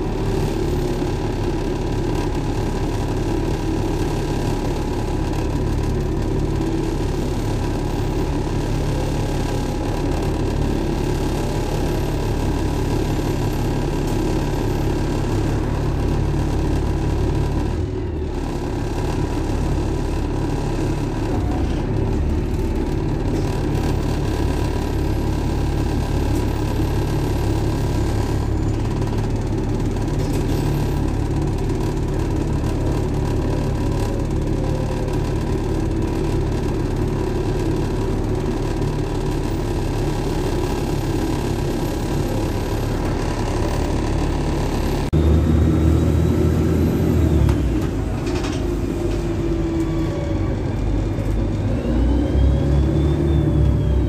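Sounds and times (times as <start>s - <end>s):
bus engine hum from inside: 0.0s - 54.0s.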